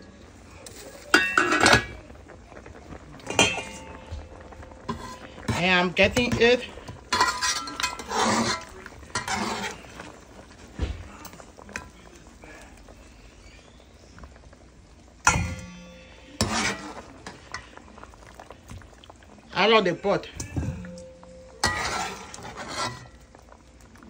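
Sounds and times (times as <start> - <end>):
metal spoon scraping in pot: 3.2 - 10.5, 15.3 - 18.5, 20.3 - 23.5.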